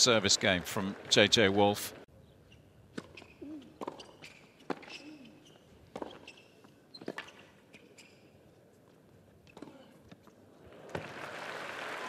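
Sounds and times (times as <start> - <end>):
shoes squeaking on court: 2.3 - 10.4.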